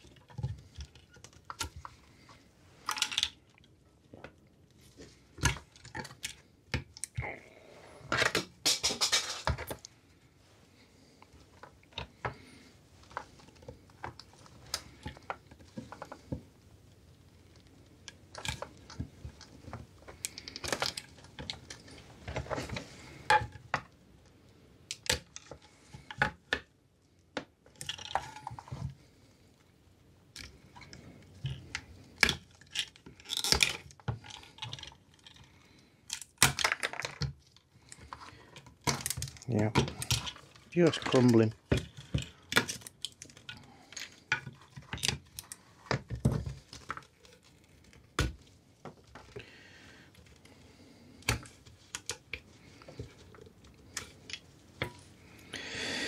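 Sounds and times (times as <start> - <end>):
brittle plastic cracking: 0.0 - 3.7, 18.3 - 23.6, 30.4 - 35.5, 36.1 - 49.4
plastic pieces clattering onto tray: 8.1 - 9.8, 36.1 - 37.3.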